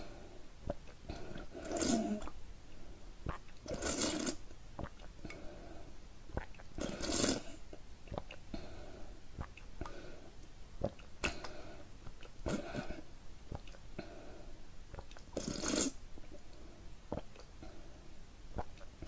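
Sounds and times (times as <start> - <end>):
person slurping liquid: 0.8 - 2.3, 3.6 - 5.0, 6.8 - 8.3, 12.4 - 13.0, 14.9 - 16.0
wet mouth clicks and swallows: 3.3 - 5.4, 13.5 - 13.8.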